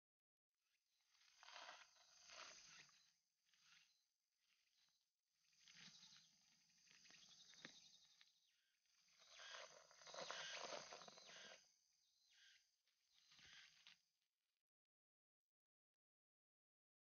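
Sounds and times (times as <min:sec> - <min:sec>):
rustling grass and leaves: 0:01.1 - 0:04.8, 0:05.5 - 0:08.3, 0:09.0 - 0:11.7.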